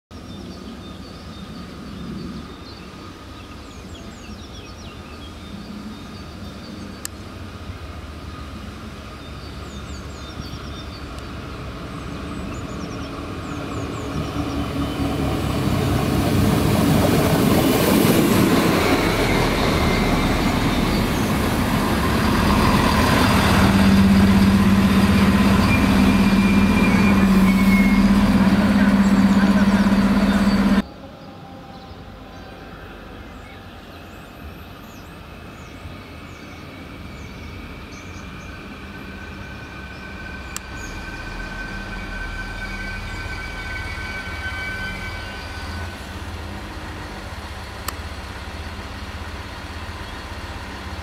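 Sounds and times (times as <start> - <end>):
train pulling into station: 2.4 - 51.0
low engine drone: 7.0 - 33.7, 38.7 - 51.0.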